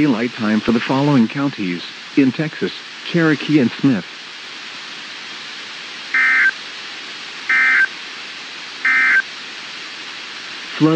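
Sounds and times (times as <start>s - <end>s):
radio hiss: 0.0s - 10.9s
buzzy digital bursts: 6.1s - 6.6s, 7.5s - 7.9s, 8.8s - 9.2s.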